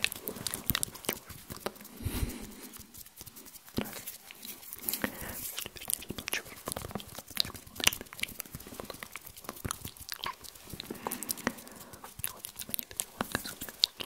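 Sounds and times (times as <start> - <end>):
wet mouth clicks and smacks: 0.0 - 14.0
hand movements near microphone: 0.6 - 3.7.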